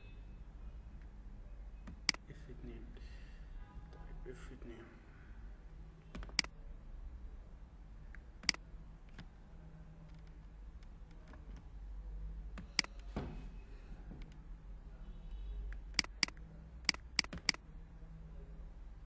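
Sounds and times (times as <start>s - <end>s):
keyboard keys clicking: 16.9s - 17.6s.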